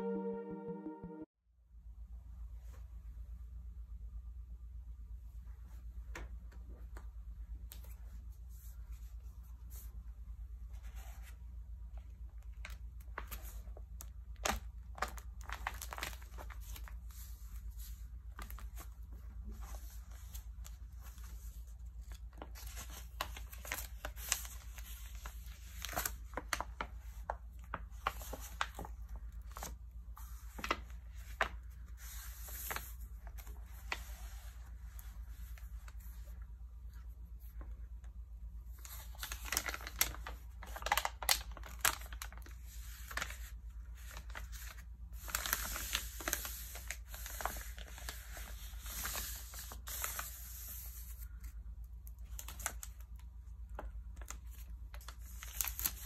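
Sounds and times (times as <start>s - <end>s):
low hum: 0.0s - 1.3s
magazine pages crinkling: 12.4s - 34.1s, 38.7s - 51.5s, 53.8s - 56.0s.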